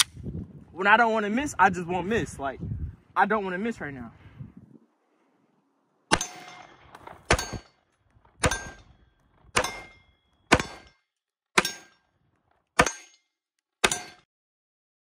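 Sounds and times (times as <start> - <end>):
metallic ring of steel targets: 6.1 - 11.0, 11.6 - 12.1, 12.8 - 14.3
pistol shots: 9.6 - 10.9.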